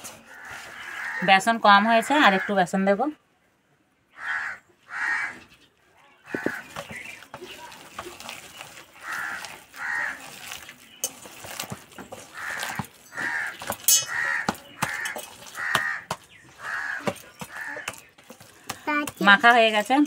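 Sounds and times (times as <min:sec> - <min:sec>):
hands kneading wet batter: 0:00.0 - 0:02.0, 0:06.3 - 0:20.0
crow cawing: 0:00.3 - 0:01.3, 0:04.1 - 0:05.5, 0:09.0 - 0:10.2, 0:12.3 - 0:18.0.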